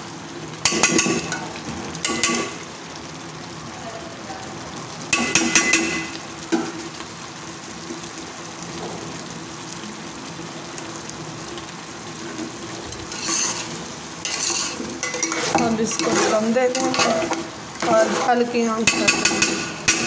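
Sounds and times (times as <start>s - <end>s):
food bubbling and sizzling in pot: 0.0s - 20.0s
ladle clinking against pot: 14.3s - 17.4s, 18.9s - 20.0s.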